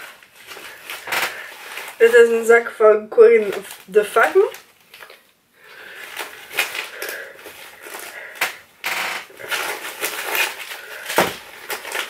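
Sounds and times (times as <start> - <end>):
bag rustling: 0.0 - 2.7, 3.4 - 12.0.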